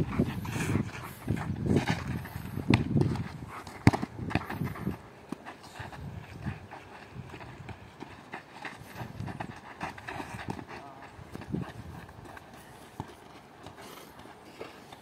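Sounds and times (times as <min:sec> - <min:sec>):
shoes running on dirt: 0:00.0 - 0:15.0
ball being kicked: 0:01.2 - 0:05.0.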